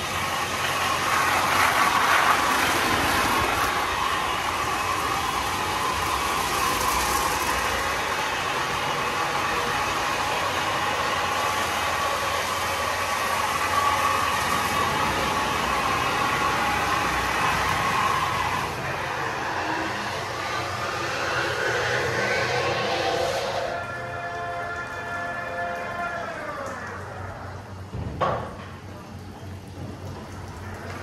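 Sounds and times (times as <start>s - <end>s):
water spray: 0.0s - 23.8s
steady machine hum: 0.0s - 31.0s.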